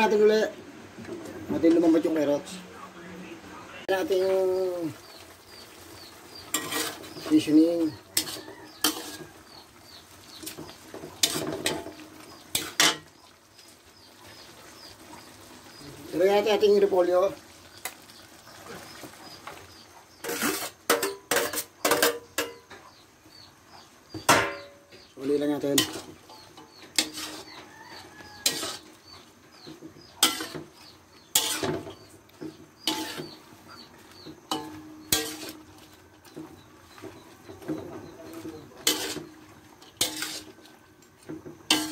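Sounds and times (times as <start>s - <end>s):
metal spatula scraping a wok: 5.6s - 13.3s, 19.5s - 22.6s, 25.6s - 41.9s.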